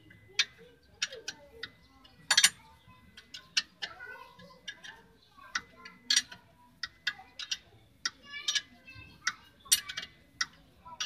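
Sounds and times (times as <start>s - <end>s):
wrench clinking on metal bolt: 0.4s - 2.6s.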